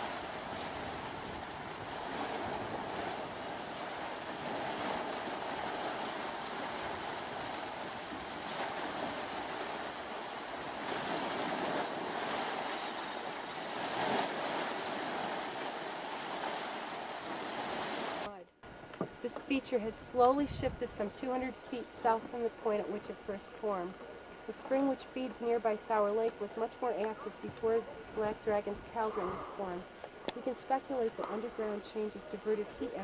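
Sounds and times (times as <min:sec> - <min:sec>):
hot spring pool hissing: 0:00.0 - 0:18.3.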